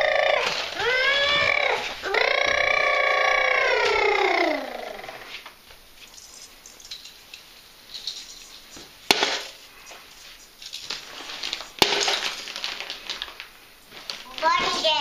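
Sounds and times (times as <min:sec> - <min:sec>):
baubles knocking into plastic trailer: 0:10.9 - 0:15.0.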